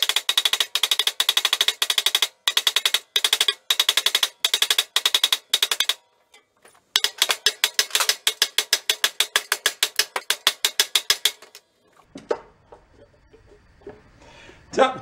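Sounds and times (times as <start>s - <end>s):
wooden mallet striking metal: 0.0s - 11.6s.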